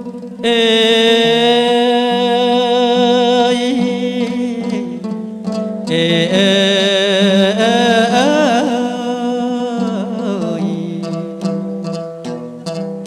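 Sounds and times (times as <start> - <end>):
plucked string notes: 0.0 - 13.0
person singing melismatic note: 5.9 - 11.4.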